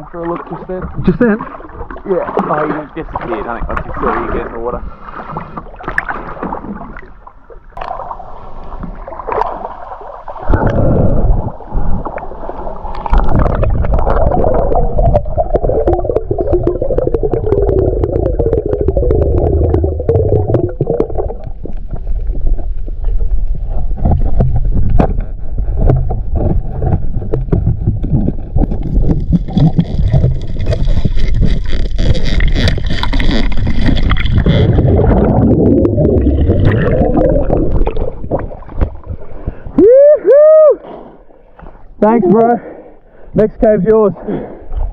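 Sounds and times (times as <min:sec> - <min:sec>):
muffled underwater water rumble: 0:00.0 - 0:43.2
sharp clicks and crackles: 0:24.0 - 0:36.1.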